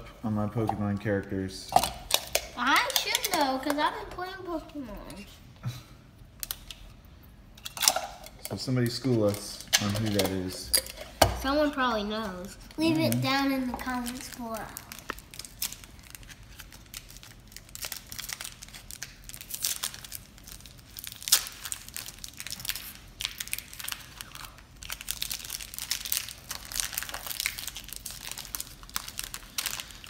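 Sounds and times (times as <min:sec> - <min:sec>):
foil pack crinkling and tearing: 0:13.9 - 0:30.0.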